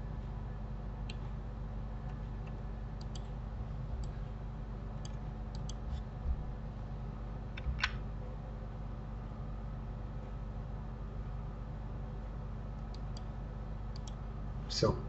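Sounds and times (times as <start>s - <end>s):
low electrical hum: 0.0s - 15.0s
computer mouse clicking: 3.0s - 3.3s, 5.0s - 6.0s, 12.8s - 13.3s, 13.9s - 14.2s
soft low thumps: 6.2s - 6.6s.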